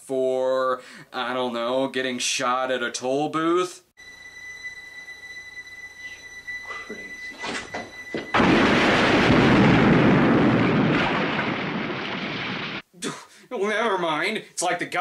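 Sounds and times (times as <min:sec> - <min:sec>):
steady high tone: 0:04.0 - 0:08.6
house explosion blast: 0:08.2 - 0:12.8.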